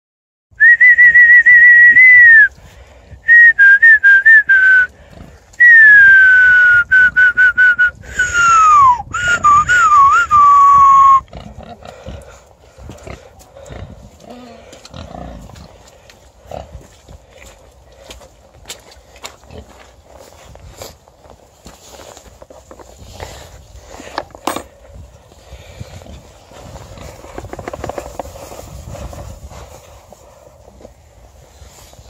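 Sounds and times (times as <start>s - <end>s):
person whistling loudly: 0.6s - 2.5s, 3.3s - 4.9s, 5.6s - 11.2s.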